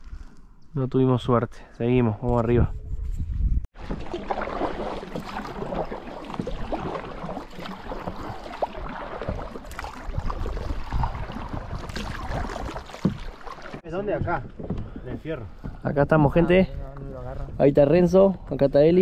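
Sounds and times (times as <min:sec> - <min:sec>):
paddle splashing in water: 0:03.7 - 0:15.8
water washing along hull: 0:03.8 - 0:15.8.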